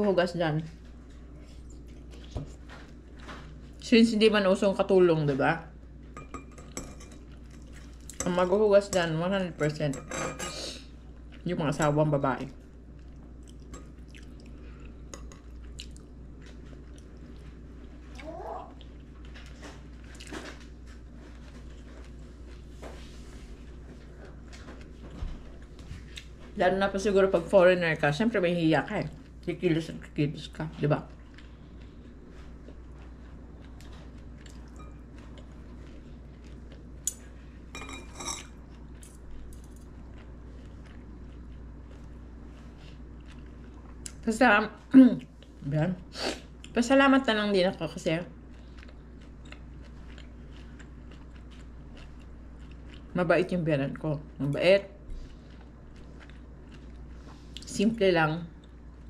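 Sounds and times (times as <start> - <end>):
steady low hum: 0.0 - 59.0
chewing: 12.9 - 22.7, 31.1 - 37.4, 38.4 - 44.2, 48.3 - 53.2, 55.1 - 57.7.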